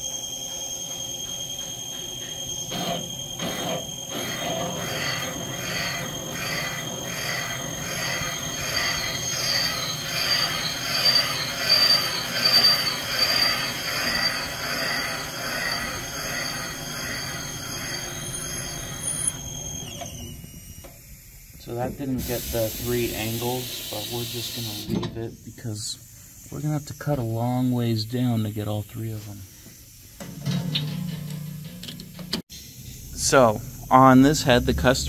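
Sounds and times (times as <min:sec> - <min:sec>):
metallic squealing chatter: 0:00.0 - 0:20.7, 0:33.2 - 0:35.0
high machine whine: 0:00.0 - 0:35.0.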